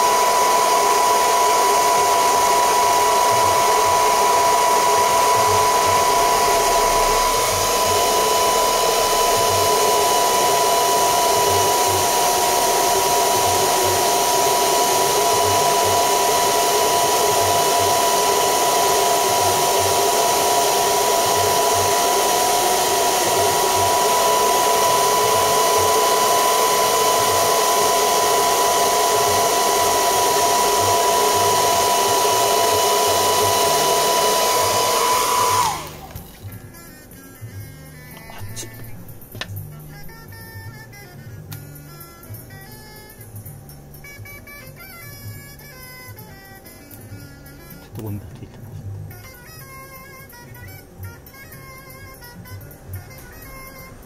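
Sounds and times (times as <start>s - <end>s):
hair dryer running: 0.0s - 36.9s, 37.6s - 48.1s, 49.1s - 54.0s.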